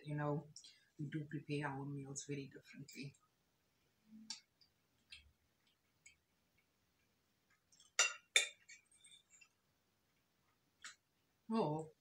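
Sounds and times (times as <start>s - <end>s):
fork clinking on ceramic plate: 7.8s - 9.5s.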